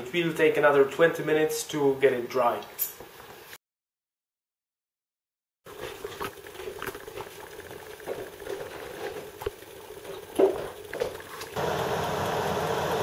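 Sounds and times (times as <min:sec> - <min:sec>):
liquid boiling with bubbling pops: 0:05.7 - 0:12.9
hiss of vigorous boiling: 0:05.7 - 0:13.0.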